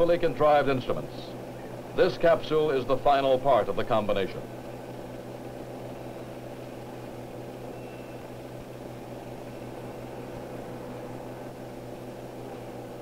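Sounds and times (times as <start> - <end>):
low mechanical hum: 0.0 - 13.0.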